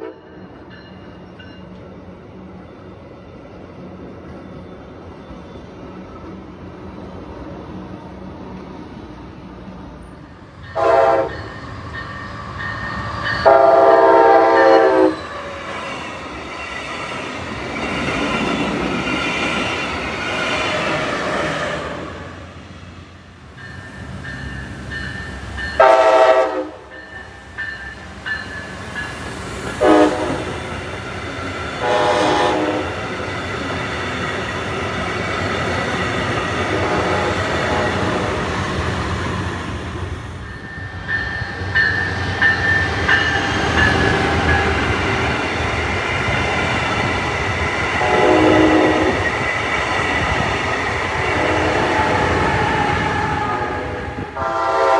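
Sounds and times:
train horn blasts: 0.0 - 0.4, 10.7 - 11.5, 13.4 - 15.3, 25.8 - 26.9, 29.8 - 30.6, 31.8 - 33.0, 48.0 - 49.2, 51.3 - 52.2, 53.2 - 54.9
train rolling on rails: 0.0 - 54.9.

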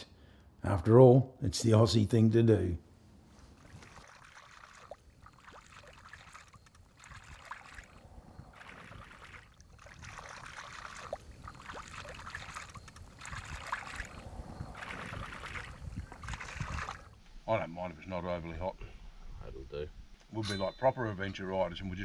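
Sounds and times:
water swishing and trickling: 3.1 - 17.2.

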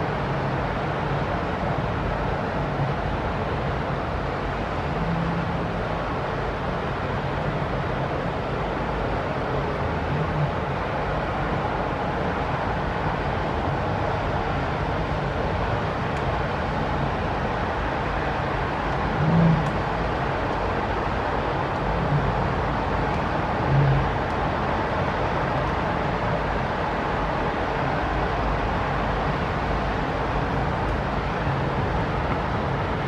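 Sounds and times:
distant traffic: 14.4 - 33.0
brief low rumbles: 19.2 - 19.8.

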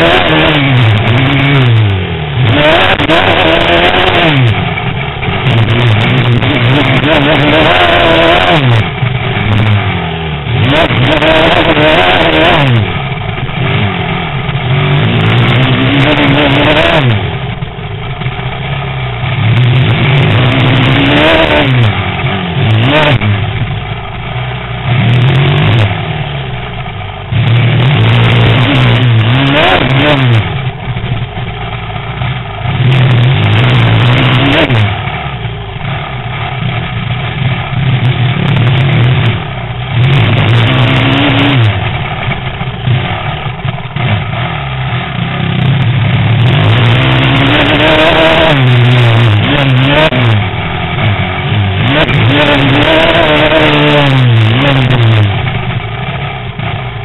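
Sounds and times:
motocross bike engine revving: 0.0 - 57.0.

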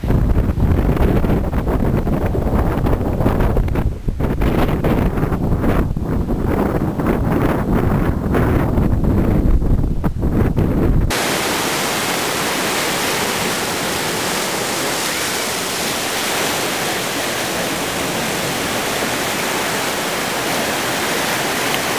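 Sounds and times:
wind rumbling on microphone: 0.0 - 21.9
steady rushing hiss: 11.1 - 21.9.

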